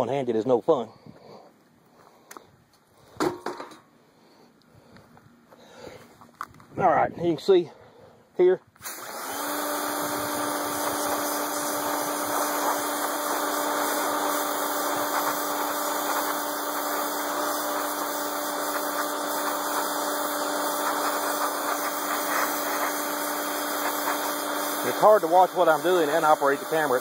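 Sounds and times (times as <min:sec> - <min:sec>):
pressure washer humming: 0:08.8 - 0:27.0
water jet hissing on steel: 0:08.8 - 0:27.0.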